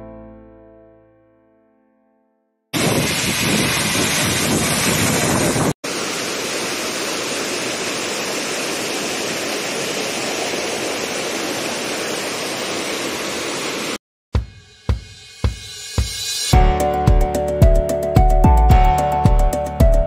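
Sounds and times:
stream rushing over rocks: 2.8 - 14.0
waterfall pouring onto rocks: 2.8 - 14.0.

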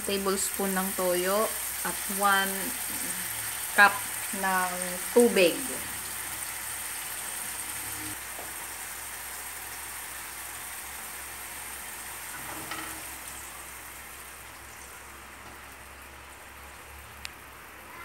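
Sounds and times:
food sizzling in a wok: 0.0 - 18.0.

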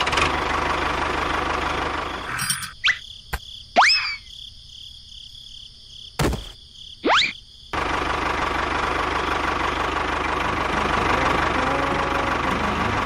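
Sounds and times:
motor engine running: 0.0 - 2.6, 7.8 - 13.0
cricket-like chirring: 1.8 - 7.8
thump: 6.2 - 6.6.

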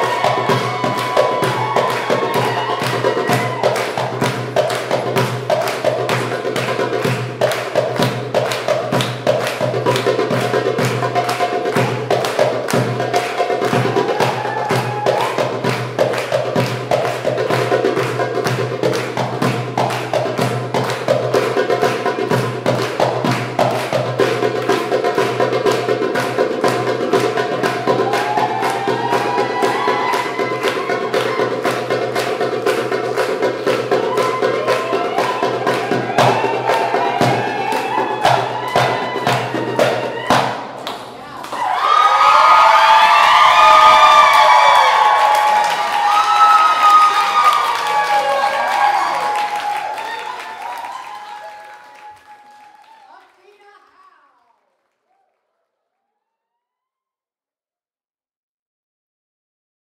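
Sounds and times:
fast hand drum solo: 0.0 - 40.8.

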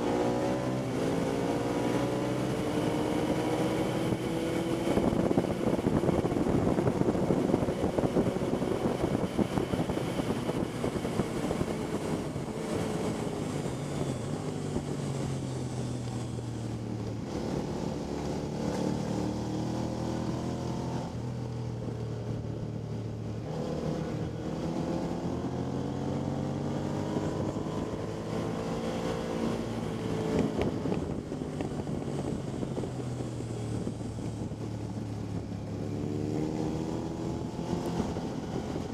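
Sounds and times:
motorcycle engine accelerating: 0.0 - 38.9
wind noise on microphone: 0.0 - 38.9.

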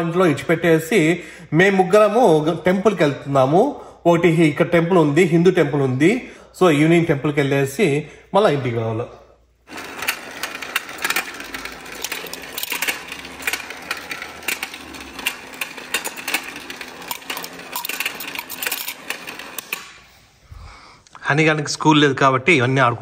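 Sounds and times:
toys clicking and clattering: 9.7 - 20.0.

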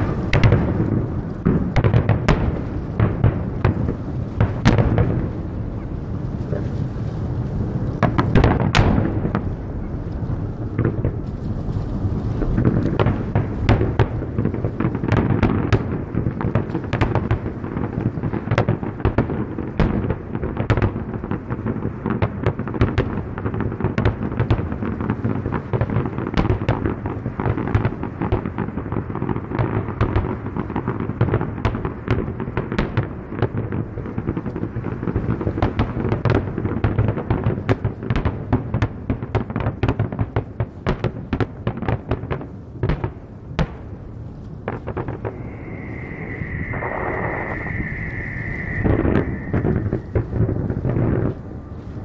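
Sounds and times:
firework shells bursting: 44.4 - 51.5
low rumble: 44.9 - 51.6.

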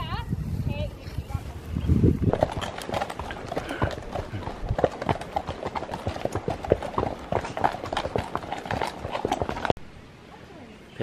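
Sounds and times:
horse hooves clip-clopping on dirt: 0.9 - 9.8.

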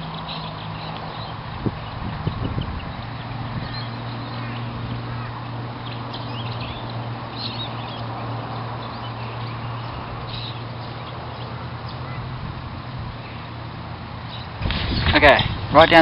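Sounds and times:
small birds chirping: 0.0 - 16.0
wind noise: 1.3 - 5.4, 14.5 - 16.0.

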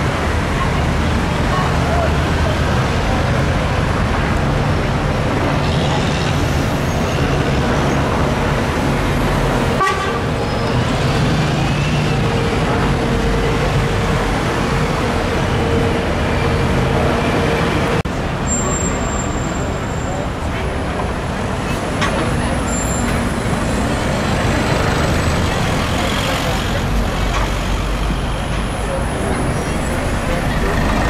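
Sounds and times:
road traffic: 0.0 - 31.0
steady horn tone: 9.8 - 10.4.

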